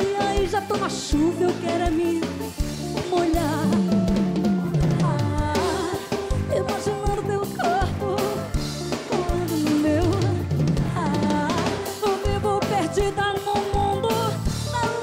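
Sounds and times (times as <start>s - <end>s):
drum kit: 0.0s - 15.0s
upbeat pop music: 0.0s - 15.0s
low notes falling in pitch: 3.5s - 5.7s.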